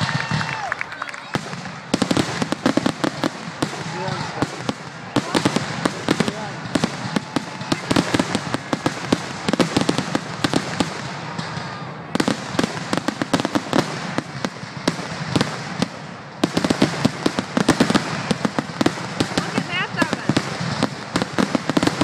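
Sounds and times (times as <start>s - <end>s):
fireworks bangs: 0.0s - 22.0s.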